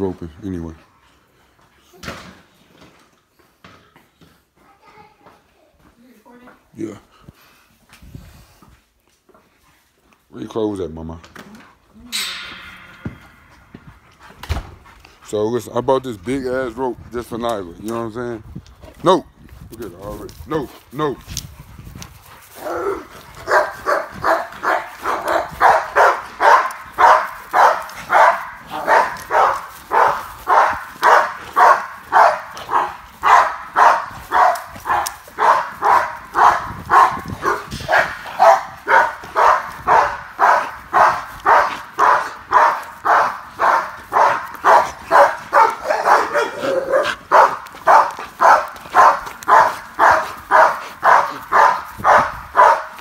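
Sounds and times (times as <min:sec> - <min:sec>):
dog barking: 0:22.6 - 0:53.0.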